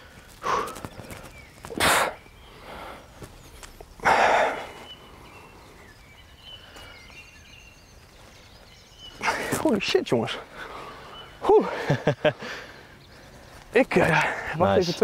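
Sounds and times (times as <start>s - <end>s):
man breathing hard: 0.0s - 3.4s, 4.0s - 5.9s, 10.5s - 11.4s, 12.3s - 13.6s.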